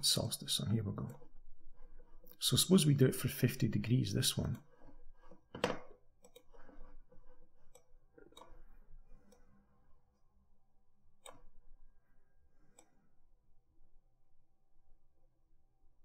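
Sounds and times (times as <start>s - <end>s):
low room hum: 6.1s - 16.0s.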